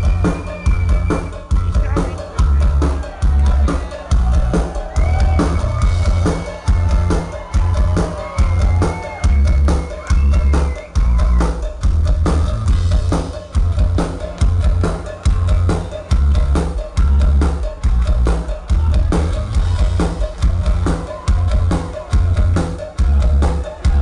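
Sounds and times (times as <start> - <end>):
drum kit beat: 0.0 - 24.0
heavy bass: 0.0 - 24.0
live rock band: 0.0 - 24.0.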